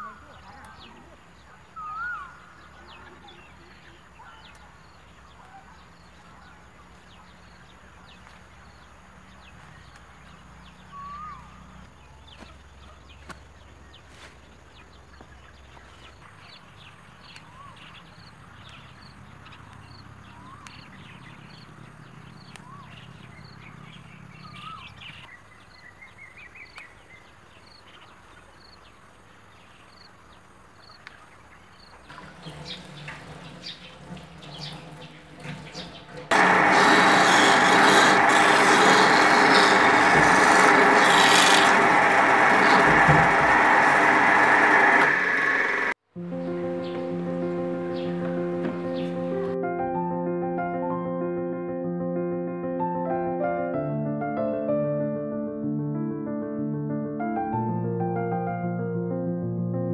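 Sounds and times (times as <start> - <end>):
bird chirps: 0.0 - 14.1, 14.7 - 36.2.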